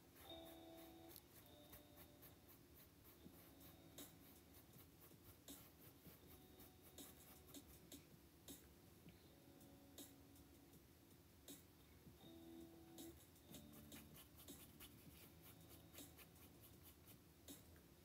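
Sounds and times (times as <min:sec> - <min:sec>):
paintbrush dabbing on canvas: 0:00.0 - 0:07.9, 0:13.7 - 0:17.2.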